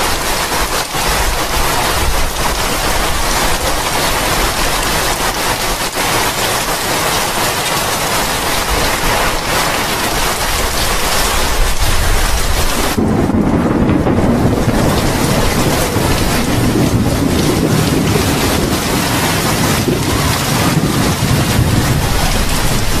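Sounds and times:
heavy rain hiss: 0.0 - 23.0
low rumble: 11.8 - 23.0.

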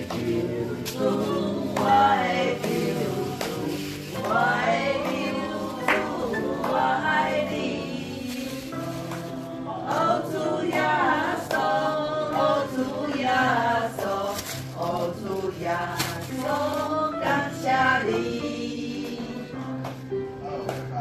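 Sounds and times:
voices singing slow melody: 0.0 - 21.0.

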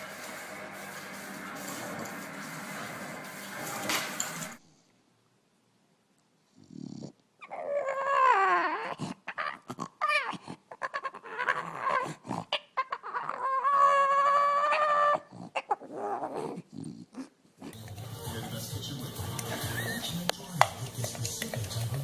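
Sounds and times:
dog whining and howling: 7.4 - 16.6.

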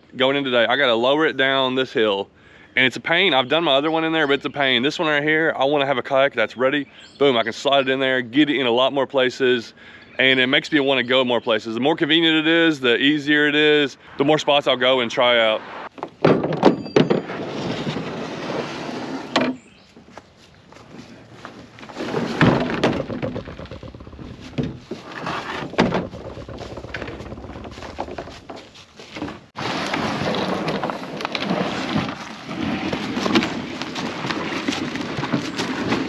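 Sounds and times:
plastic kayak knocking and scraping: 15.9 - 20.2, 20.8 - 36.0
loud thuds: 22.0 - 28.5
hull dragged over dry leaves: 23.4 - 36.0.

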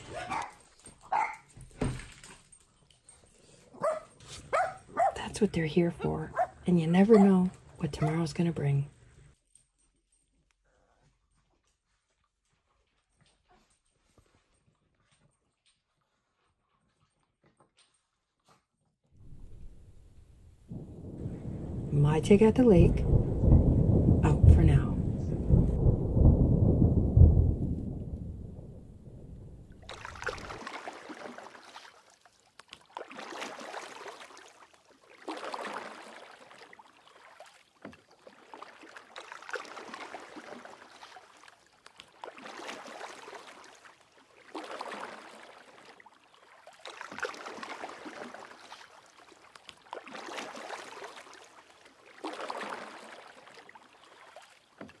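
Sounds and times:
thunder rumble: 19.2 - 30.6
small waves lapping on shore: 29.8 - 55.0.

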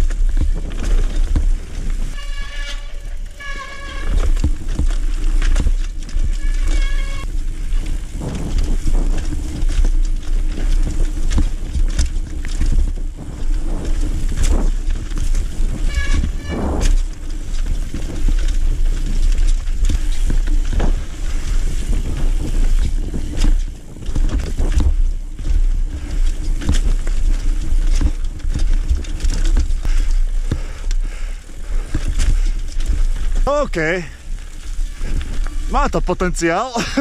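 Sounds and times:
bike clattering over roots: 0.0 - 37.0
wind rumble on microphone: 0.0 - 37.0.

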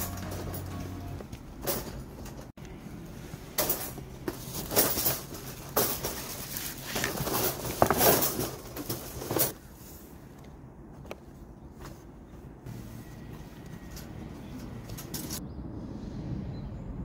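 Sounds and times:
cat rattling metal cage: 3.6 - 6.5.

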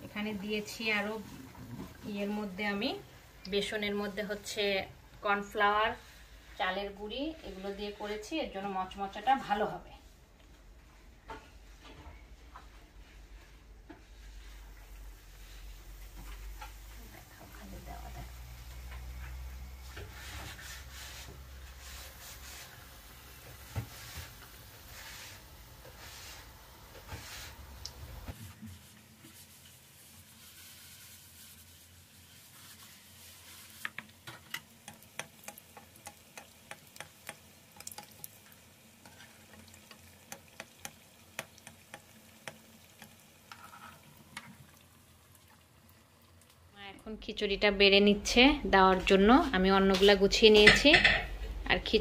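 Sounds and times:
food sizzling and popping in oil: 15.5 - 46.8.

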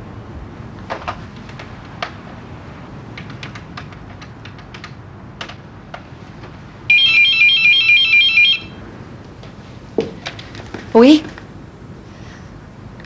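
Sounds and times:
warbling electronic phone ring: 6.9 - 8.7.

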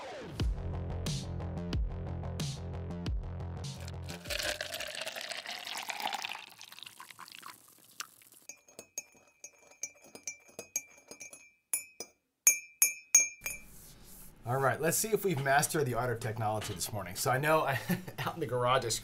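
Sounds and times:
coffee pouring into mug: 3.8 - 10.4
spoon stirring and clinking in mug: 4.1 - 13.7.

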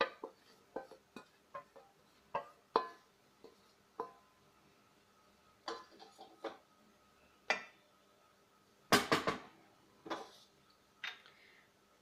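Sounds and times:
spoon and plate knocking pan: 0.0 - 3.0, 5.6 - 6.6, 8.9 - 9.5.

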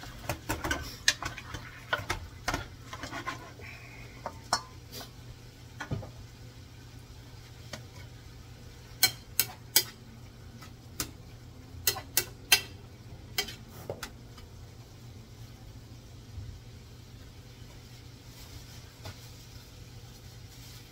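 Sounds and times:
spoon scraping a skillet: 0.0 - 5.2, 8.9 - 10.0, 11.8 - 14.1.

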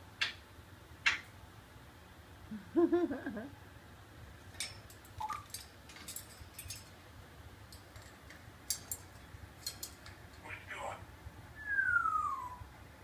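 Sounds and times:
parrot beak clicking on cage bars: 4.5 - 6.9
low wavering hoot: 11.6 - 12.7.

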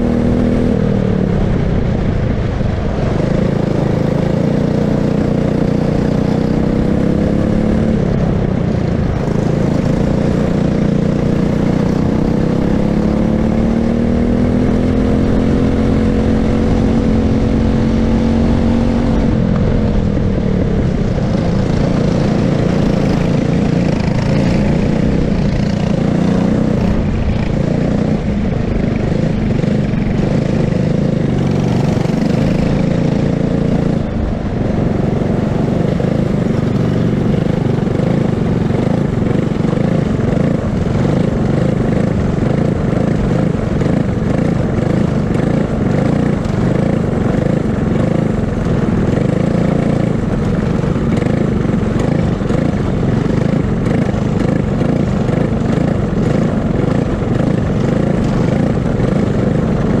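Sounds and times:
kart engine running: 0.0 - 60.0
second kart engine passing: 9.1 - 60.0.

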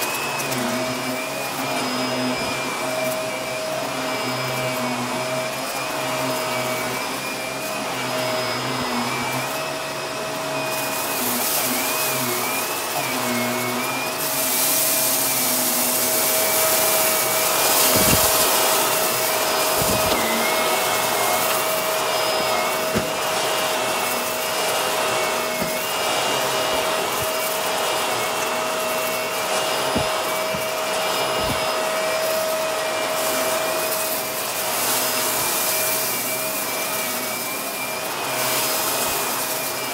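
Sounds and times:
vacuum cleaner motor whine: 0.0 - 39.9.

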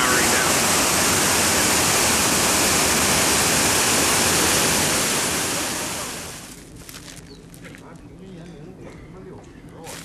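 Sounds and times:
waterfall rushing: 0.0 - 6.5.

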